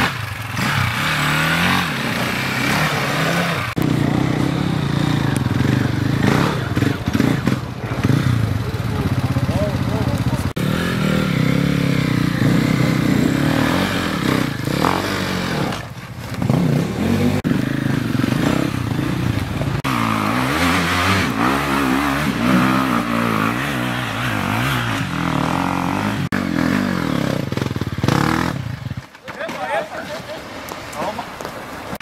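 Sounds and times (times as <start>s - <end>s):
dirt bike engines revving: 0.0s - 32.0s
bikes clattering on rocks: 29.0s - 31.6s.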